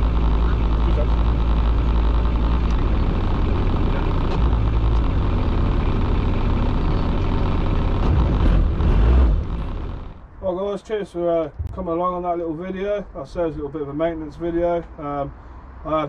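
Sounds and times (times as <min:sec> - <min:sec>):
boat engine running: 0:00.0 - 0:10.3.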